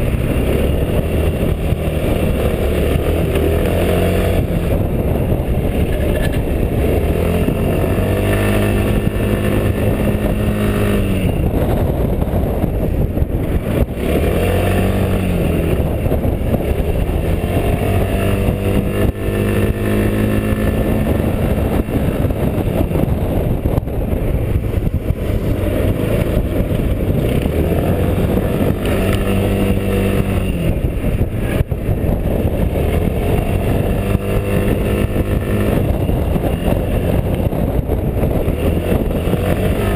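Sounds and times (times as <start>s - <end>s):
scooter engine revving: 0.0s - 39.9s
wind on microphone: 0.0s - 39.9s.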